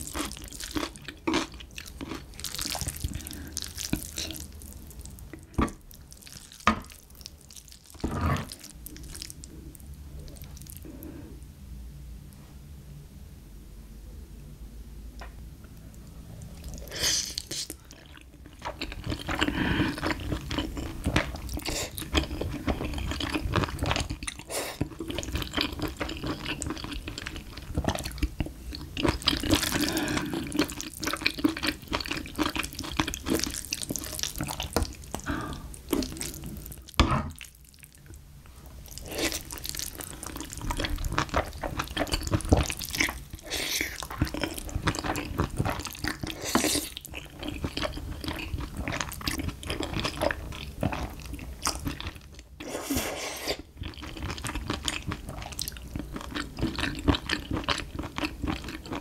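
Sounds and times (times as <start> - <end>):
chewing: 0.0 - 9.5, 15.8 - 38.2, 38.9 - 59.0.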